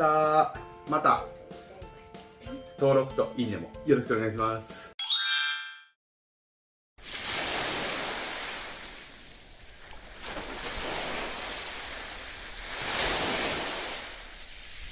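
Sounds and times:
sea waves washing in: 0:07.0 - 0:14.9.

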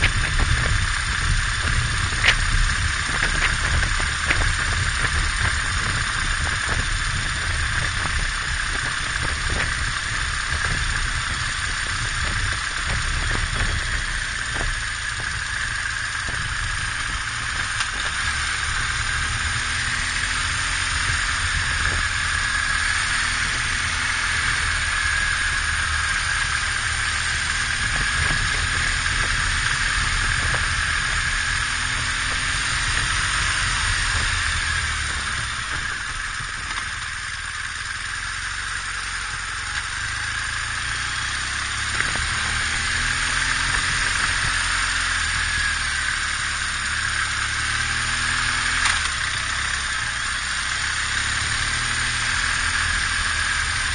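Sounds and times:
motorcycle engine rumble: 0:00.0 - 0:53.9
wind and road hiss: 0:00.0 - 0:53.9.

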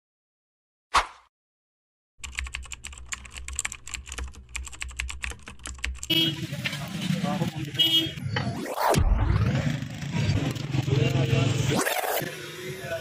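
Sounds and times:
busy street noise: 0:06.1 - 0:13.0.

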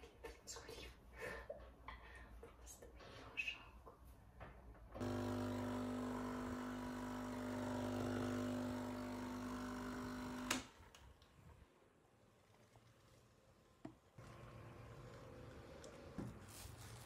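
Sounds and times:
coffee machine pump humming: 0:05.0 - 0:10.6, 0:14.2 - 0:16.3.

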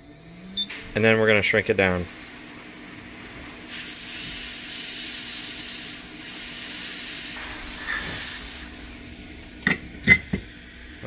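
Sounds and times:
heat gun hissing: 0:00.0 - 0:11.0.

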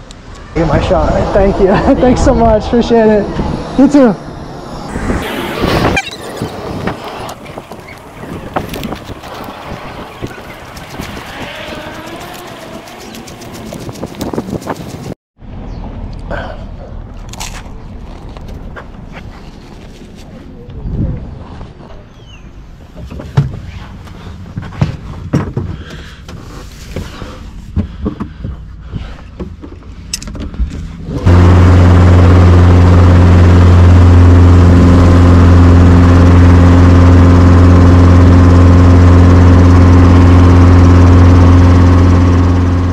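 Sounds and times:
helicopter engine and rotor: 0:31.4 - 0:42.9.

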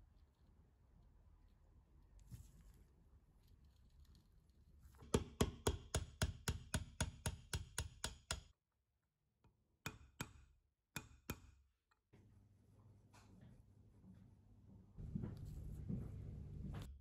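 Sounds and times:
hammer tapping metal punch: 0:05.1 - 0:08.5.

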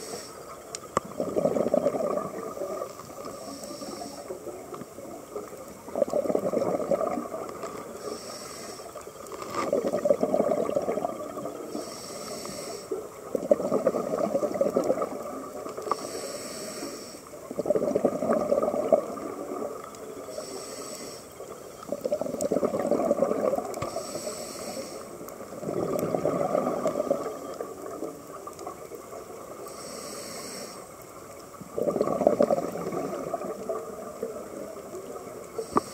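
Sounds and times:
regulator hissing inhale: 0:00.0 - 0:00.6, 0:03.0 - 0:04.4, 0:07.9 - 0:09.2, 0:11.6 - 0:13.2, 0:15.8 - 0:17.4, 0:20.2 - 0:21.7, 0:23.8 - 0:25.4, 0:29.6 - 0:31.0, 0:35.6 - 0:35.9
bubbling exhale underwater: 0:01.0 - 0:08.2, 0:09.6 - 0:11.9, 0:13.1 - 0:16.0, 0:17.3 - 0:20.5, 0:21.3 - 0:29.7, 0:31.6 - 0:35.9.

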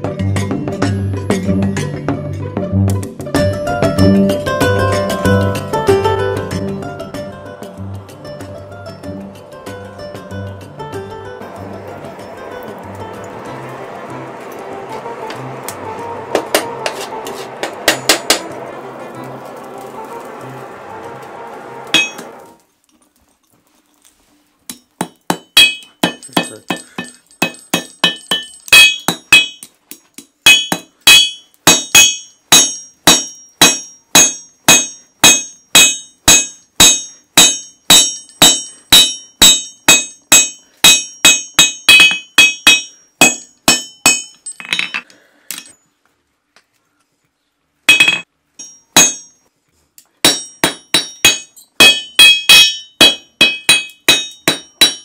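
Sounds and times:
hammer striking anvil: 0:11.4 - 0:18.8, 0:21.9 - 0:22.4, 0:24.7 - 0:29.7, 0:30.4 - 0:45.7, 0:47.9 - 0:49.4, 0:50.2 - 0:55.0.

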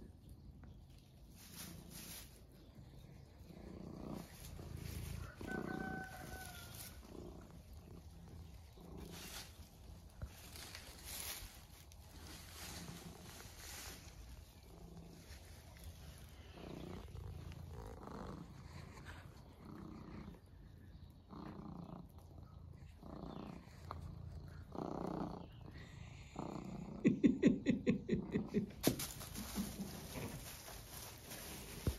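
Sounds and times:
rustle of straw: 0:00.9 - 0:20.2, 0:28.6 - 0:31.9
cat purring: 0:01.4 - 0:28.7.

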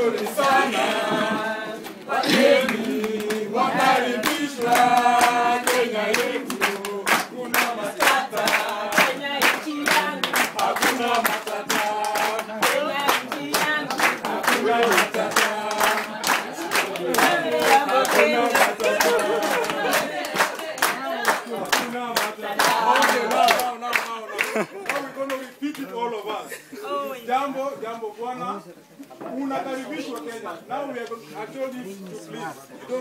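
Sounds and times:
group of voices singing: 0:00.0 - 0:24.3
hand clapping: 0:02.2 - 0:25.8.

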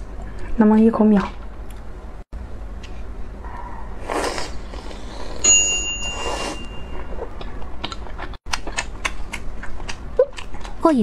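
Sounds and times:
sucking slurps: 0:04.0 - 0:05.4
bell-like ding: 0:05.4 - 0:07.0
crisp chewing clicks: 0:07.4 - 0:10.8.

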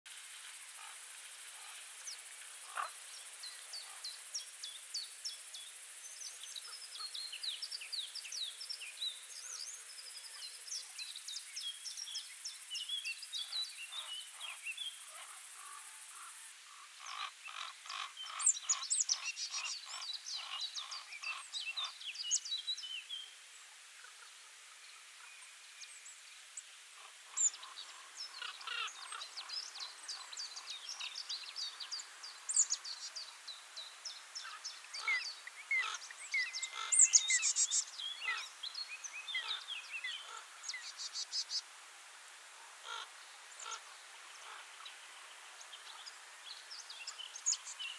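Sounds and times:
faint steady high hiss: 0:00.1 - 0:47.9
songbirds chirping and singing: 0:27.3 - 0:41.5.

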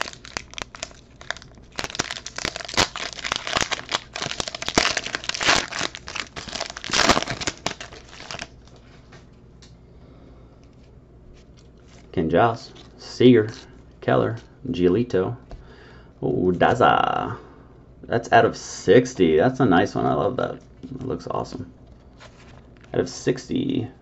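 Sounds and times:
foil wrapper crinkling and tearing: 0:00.0 - 0:08.8.

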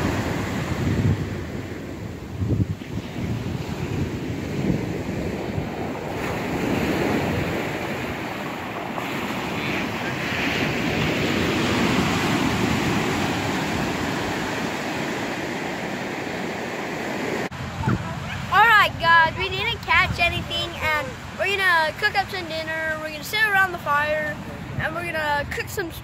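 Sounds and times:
ocean surf breaking on beach: 0:00.0 - 0:26.0
wind buffeting microphone: 0:00.0 - 0:26.0.

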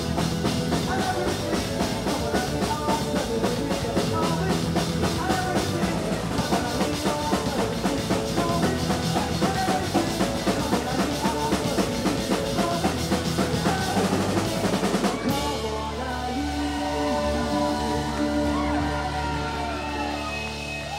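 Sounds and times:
snare and bass drum beat: 0:00.0 - 0:15.8
rock band playing: 0:00.0 - 0:20.9.

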